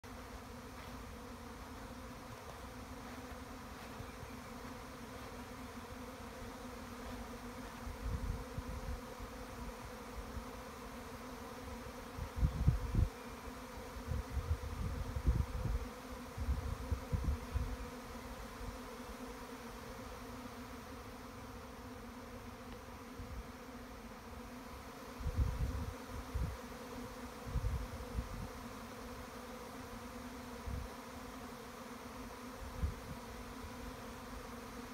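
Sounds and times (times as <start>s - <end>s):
bee swarm buzzing: 0.0s - 34.9s.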